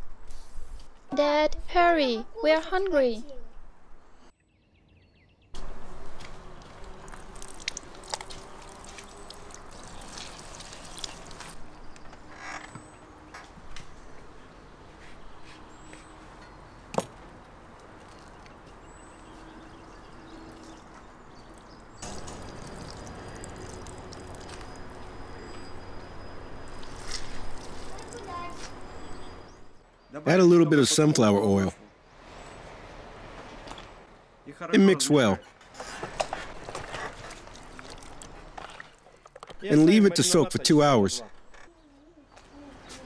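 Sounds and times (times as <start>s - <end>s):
juice dripping into plastic bowl: 6.6s - 11.6s, 21.4s - 24.9s, 37.4s - 39.0s.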